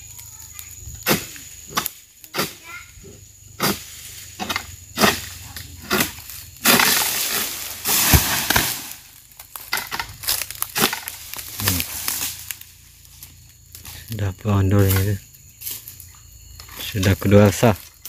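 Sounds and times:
footsteps crunching dry leaves: 6.4s - 18.0s.

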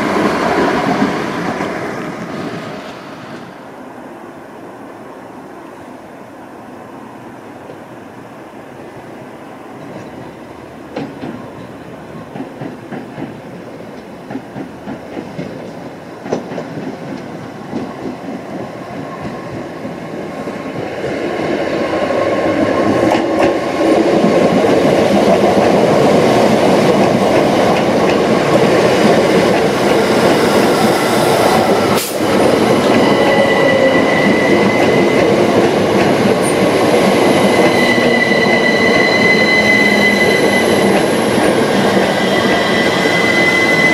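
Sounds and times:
train rumble: 6.8s - 43.9s
train wheels clicking over rail joints: 9.8s - 21.2s, 22.5s - 39.1s
high-pitched brake squeal: 32.8s - 35.4s, 37.2s - 41.4s, 42.1s - 43.9s.

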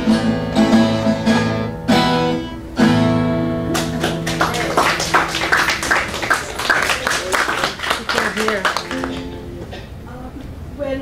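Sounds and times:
acoustic guitar strumming: 0.0s - 6.2s, 8.6s - 10.0s.

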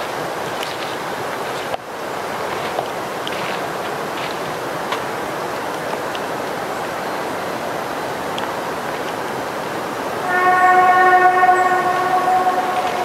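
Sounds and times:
steady rushing noise: 10.1s - 13.0s
train horn blast: 10.2s - 13.0s.

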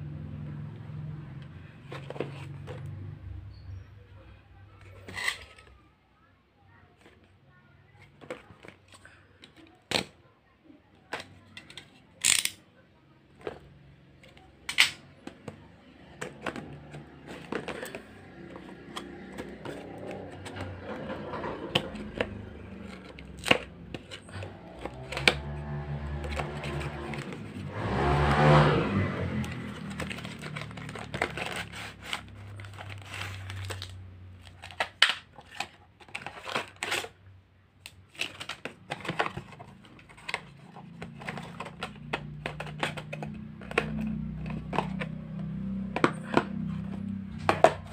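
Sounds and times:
knife and box clicks: 11.6s - 12.6s.

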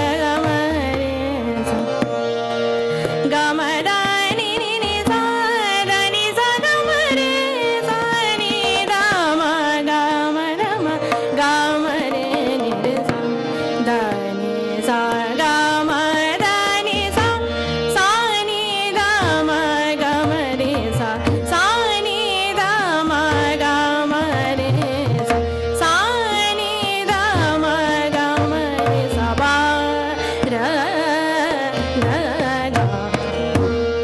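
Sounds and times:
woman singing classical vocal: 0.0s - 2.1s, 3.2s - 33.8s
tabla strokes: 0.0s - 34.0s
tanpura and harmonium drone: 0.0s - 34.0s.

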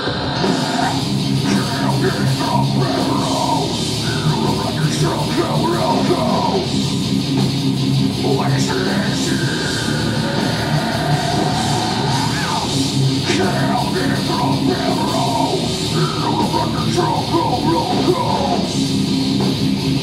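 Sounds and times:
distorted electric guitars: 0.0s - 20.0s
drums: 0.0s - 20.0s
person shouting vocals: 0.8s - 6.6s, 13.3s - 18.7s.

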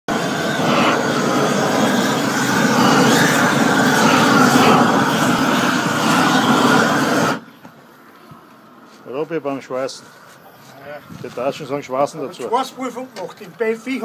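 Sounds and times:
gas torch rushing hiss: 0.1s - 7.5s.

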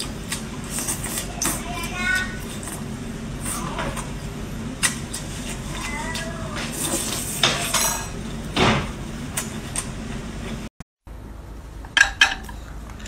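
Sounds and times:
low background hum: 0.0s - 13.0s
tableware clinking: 11.9s - 12.6s.

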